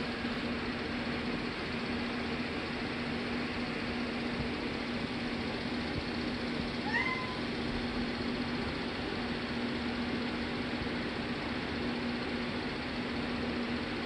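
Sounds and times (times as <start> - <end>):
steady background hum: 0.0 - 14.0
cat meowing: 6.8 - 7.5.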